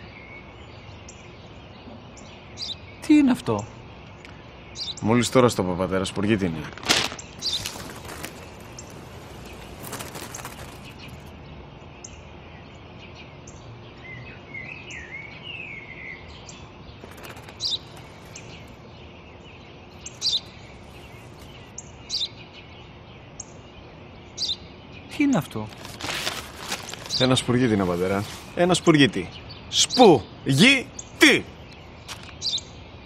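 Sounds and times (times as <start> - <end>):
outdoor background: 0.0 - 33.0
sparrow chirping: 0.0 - 33.0
rustle: 6.2 - 12.2, 16.4 - 22.9, 25.2 - 29.2, 31.2 - 32.6.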